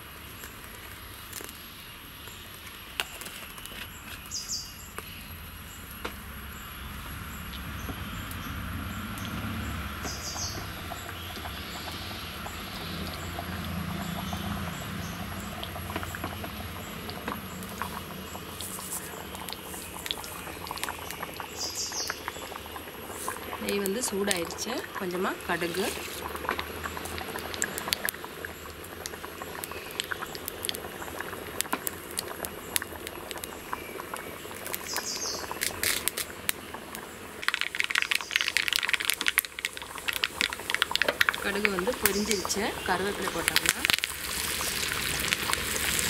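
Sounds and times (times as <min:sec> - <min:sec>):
gas flame rumble: 0:05.3 - 0:38.0
birds chirping: 0:06.8 - 0:26.0, 0:33.4 - 0:35.6, 0:41.4 - 0:43.8
ghee hissing in pan: 0:09.4 - 0:46.0.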